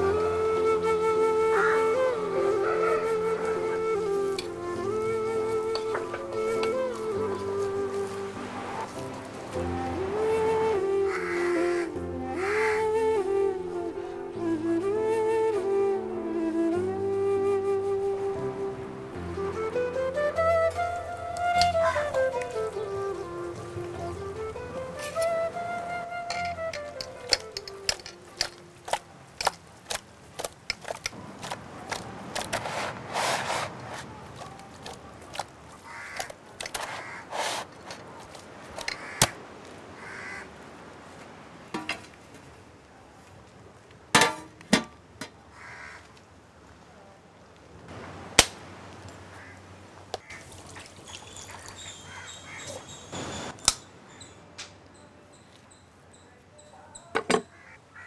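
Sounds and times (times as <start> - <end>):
birds calling: 1.4 - 9.6, 10.3 - 13.4, 20.2 - 29.6, 32.2 - 40.6, 49.3 - 54.6, 55.3 - 58.0
utensils clicking and knocking: 26.3 - 32.6.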